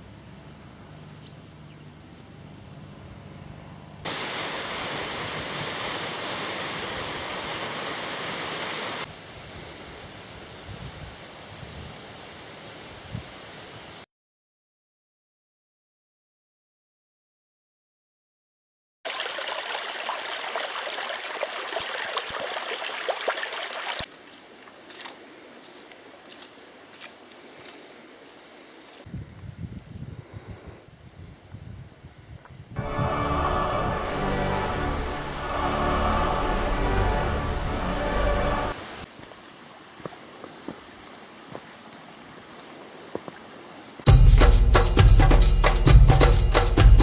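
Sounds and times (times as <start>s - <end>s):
stream babbling over stones: 4.1s - 9.1s, 19.1s - 24.6s
waterfall rushing: 4.1s - 9.1s, 32.8s - 39.1s
low hum: 32.8s - 38.8s.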